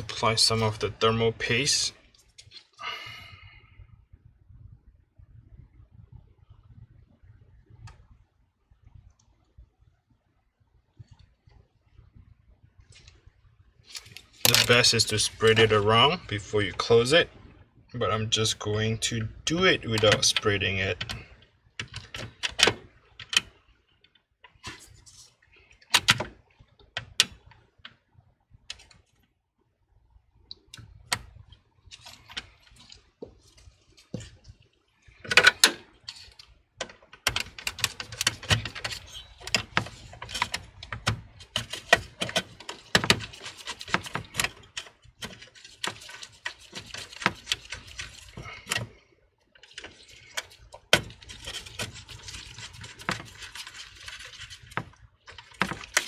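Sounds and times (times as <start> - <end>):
small clicks and rattles: 19.9 - 28.1, 30.5 - 56.0
hands clicking and tapping parts: 36.8 - 48.9.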